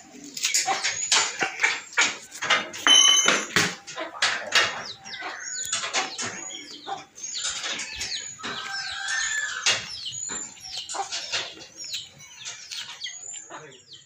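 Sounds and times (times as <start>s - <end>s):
birds chirping: 0.0s - 14.0s
sharp clicks and knocks: 0.5s - 5.0s, 5.6s - 6.6s.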